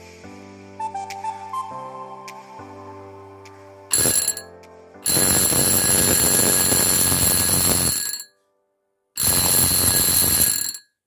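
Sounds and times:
electric bell ringing: 3.9s - 8.3s, 9.2s - 10.9s.

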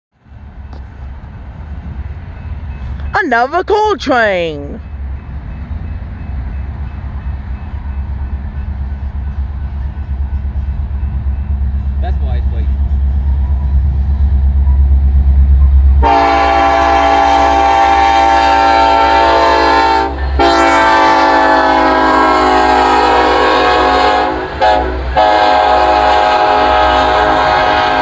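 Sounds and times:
low train rumble: 0.1s - 28.0s
locomotive air horn blasts: 16.0s - 28.0s.

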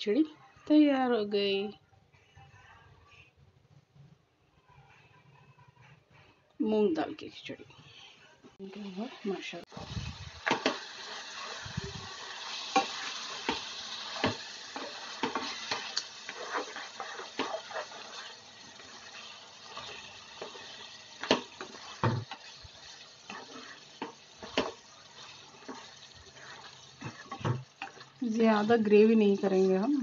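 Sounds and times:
spatula scraping a pan: 7.7s - 30.0s
curry sizzling in a pan: 8.5s - 30.0s.

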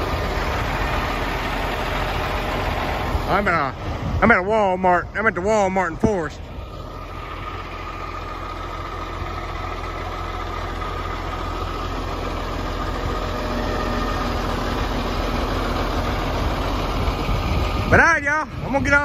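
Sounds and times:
truck diesel engine idling: 0.0s - 19.0s.

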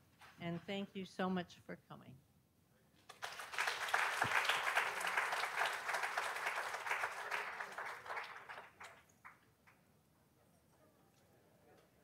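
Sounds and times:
audience applauding: 3.1s - 9.8s.

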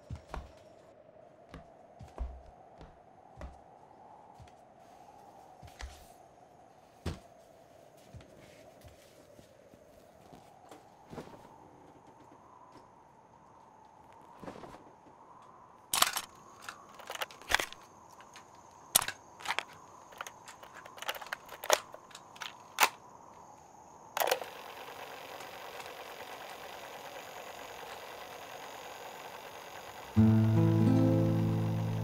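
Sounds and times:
plastic clicks and clacks: 16.0s - 23.0s, 24.2s - 24.5s
steady tape hiss: 23.0s - 32.0s.

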